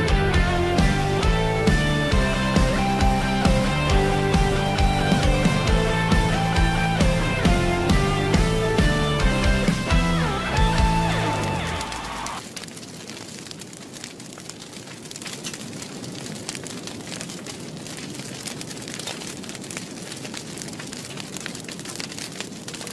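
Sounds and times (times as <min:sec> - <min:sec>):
guitar song: 0:00.0 - 0:12.4
log fire crackling: 0:00.0 - 0:22.9.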